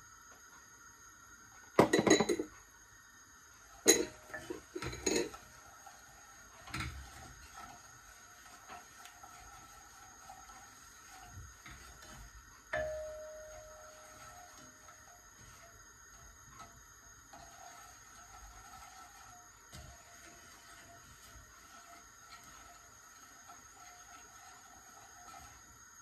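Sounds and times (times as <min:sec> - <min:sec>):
pot ringing: 0:03.9 - 0:05.3, 0:12.7 - 0:14.6.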